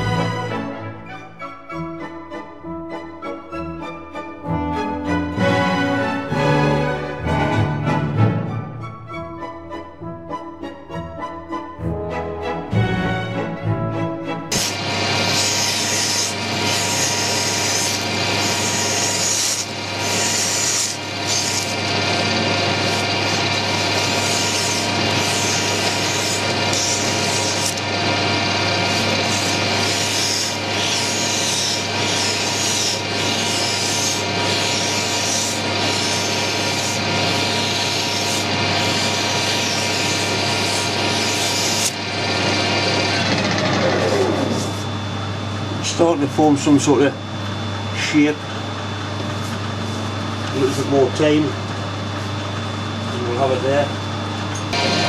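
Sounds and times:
lathe running hum: 14.5s - 55.0s.

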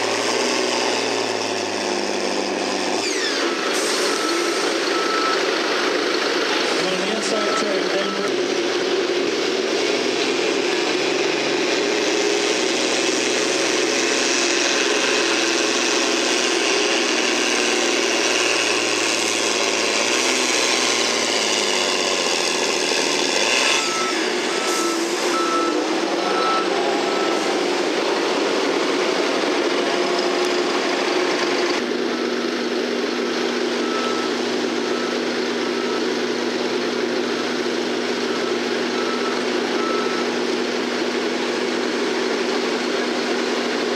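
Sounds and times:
tractor diesel engine at full throttle: 0.0s - 43.9s
reversing alarm beeping: 3.1s - 5.8s, 6.8s - 8.4s, 23.7s - 27.7s, 33.8s - 36.2s, 38.2s - 40.4s.

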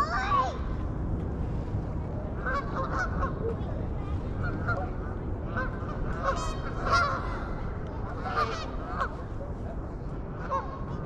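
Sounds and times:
geese honking: 5.5s - 7.5s, 8.1s - 9.1s.

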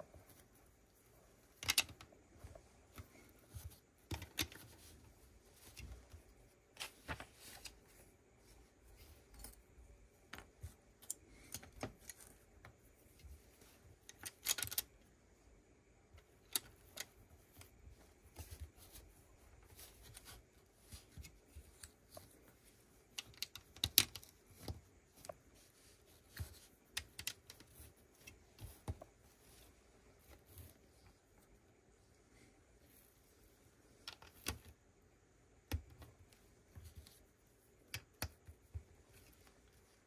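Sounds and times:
plastic bricks clicking together: 1.6s - 2.0s.

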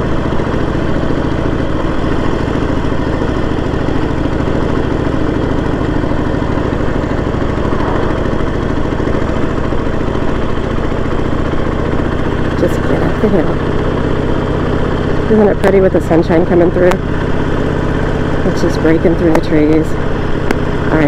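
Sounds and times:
motorcycle engine under throttle: 0.0s - 21.0s.

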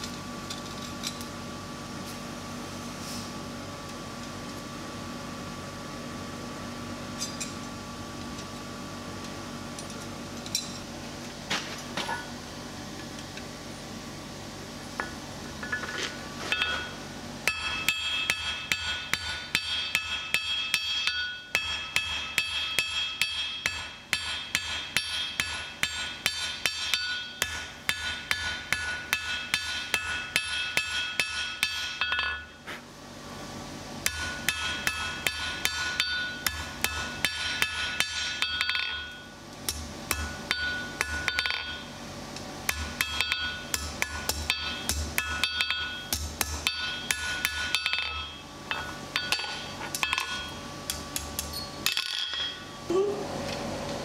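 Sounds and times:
hammer striking hot steel on anvil: 16.5s - 32.6s, 34.0s - 42.0s, 42.6s - 52.8s.

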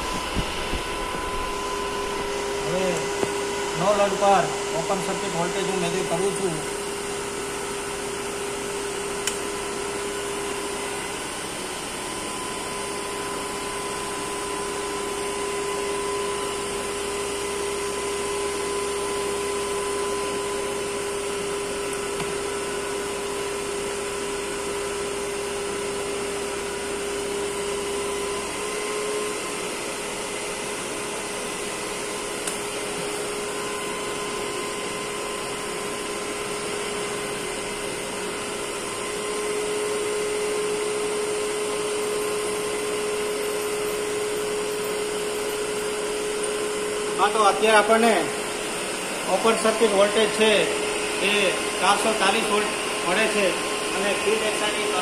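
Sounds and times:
electric motor whirring hum: 0.0s - 55.0s
steady machine whine: 0.0s - 55.0s.

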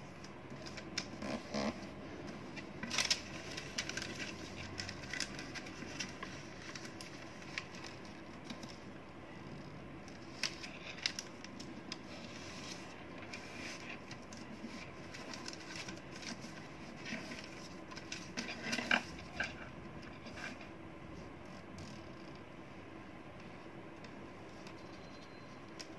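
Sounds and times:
faint steady hum: 0.0s - 25.9s
paper rustling and crinkling: 0.1s - 8.9s, 10.2s - 21.3s.

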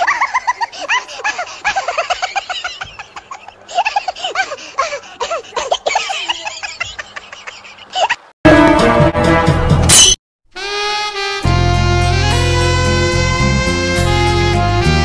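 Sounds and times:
high-pitched giggling laughter: 0.0s - 8.3s.

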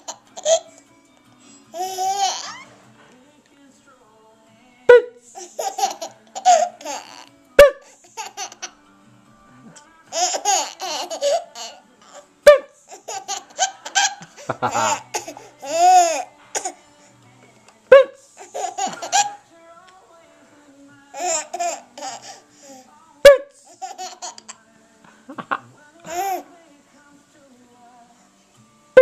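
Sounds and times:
baby giggling: 0.0s - 0.8s, 1.7s - 2.8s, 5.4s - 8.8s, 10.1s - 16.8s, 17.9s - 19.4s, 21.2s - 22.4s, 23.6s - 24.6s, 25.3s - 26.4s
baby squealing: 1.8s - 2.8s.

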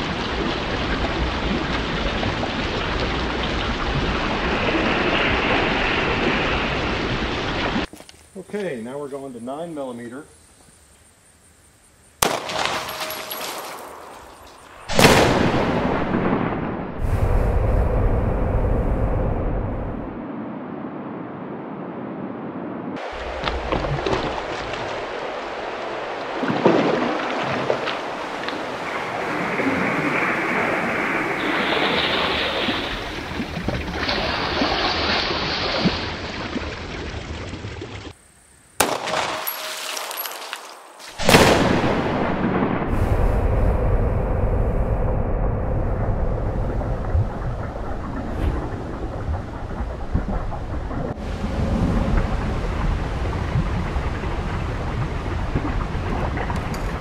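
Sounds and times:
water rushing and splashing: 0.0s - 7.9s, 12.3s - 17.4s, 23.0s - 38.1s, 46.4s - 57.0s
gunshot: 12.2s - 13.2s, 14.9s - 16.9s, 38.8s - 39.7s, 41.1s - 43.0s
rush of noise: 14.8s - 23.7s, 28.7s - 33.6s, 41.2s - 55.2s.

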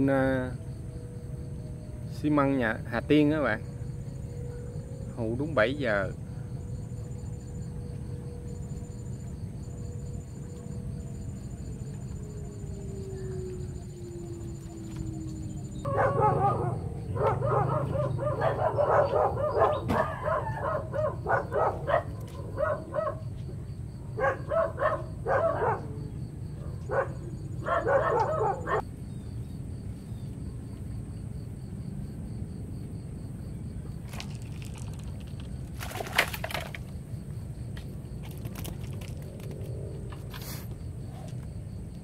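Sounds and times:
dog barking: 15.8s - 23.3s, 24.1s - 28.8s.

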